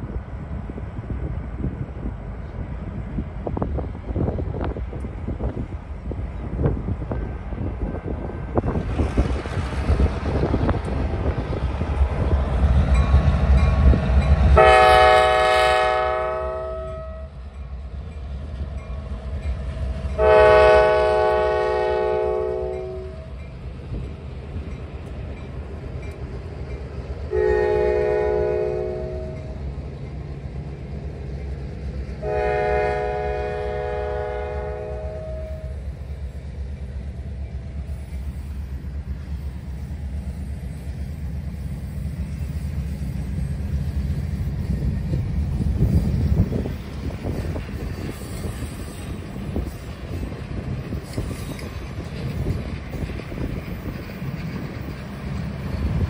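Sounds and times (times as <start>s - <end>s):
low rumble of train engines: 0.0s - 56.0s
locomotive air horn blasts: 14.6s - 17.4s, 20.2s - 23.3s, 27.3s - 29.5s, 32.2s - 35.8s.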